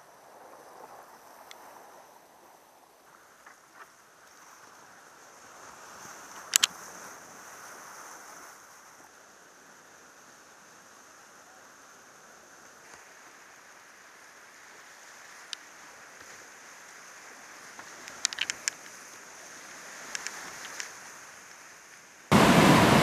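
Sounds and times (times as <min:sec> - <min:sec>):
whitewater rapids rushing: 0:15.7 - 0:23.0.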